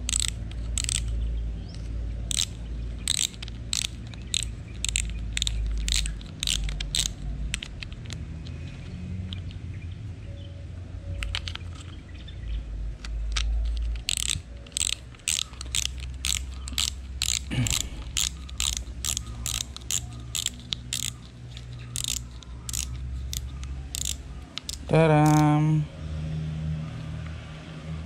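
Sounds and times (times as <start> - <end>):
fishing reel ratchet clicks: 0.0 - 1.2, 2.3 - 8.2, 13.6 - 25.5.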